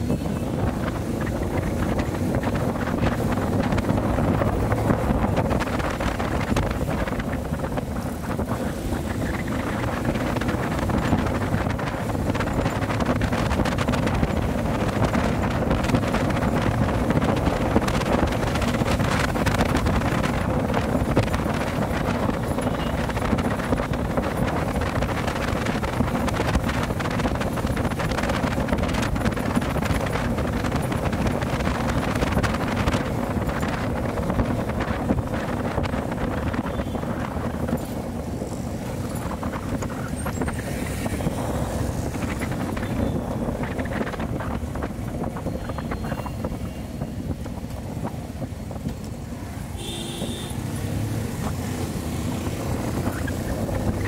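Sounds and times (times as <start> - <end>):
motorcycle engine running: 0.0 - 48.9
wind buffeting microphone: 0.0 - 54.0.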